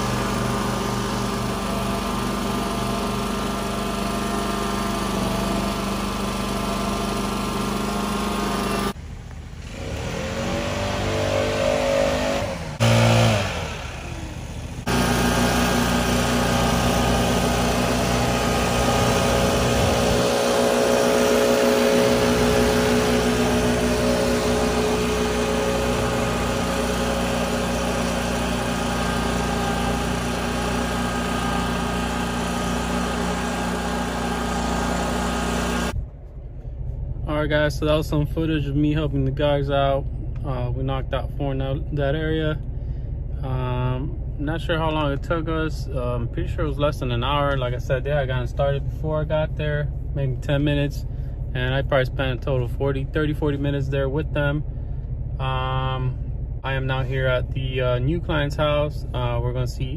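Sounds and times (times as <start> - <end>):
small engine running: 0.0 - 36.0.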